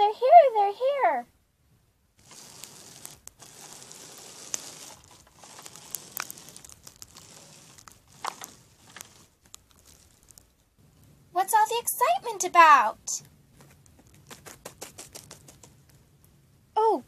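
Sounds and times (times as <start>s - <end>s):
plastic toys rustling and clicking: 2.2s - 10.7s, 13.6s - 16.0s.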